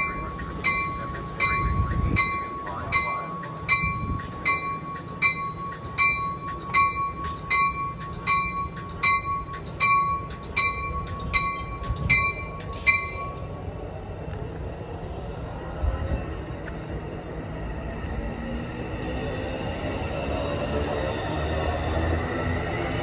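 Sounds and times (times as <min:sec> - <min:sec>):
bell ringing steadily: 0:00.0 - 0:13.6
train rumbling through station: 0:00.0 - 0:23.0.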